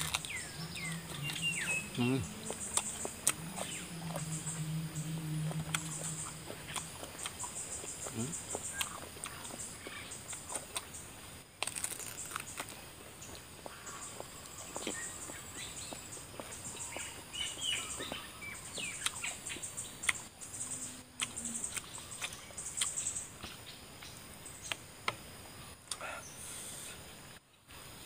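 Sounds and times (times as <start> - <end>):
chewing with mouth clicks: 0.0 - 4.6, 5.4 - 9.6, 10.3 - 11.0, 14.2 - 17.2, 18.0 - 23.0
birds chirping: 0.0 - 24.8
high insect buzz: 0.0 - 27.4.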